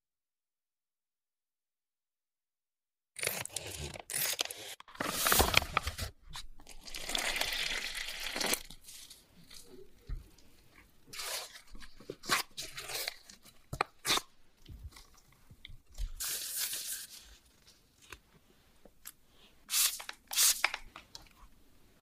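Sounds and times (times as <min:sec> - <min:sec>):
spray bottle hissing: 0:19.7 - 0:20.7.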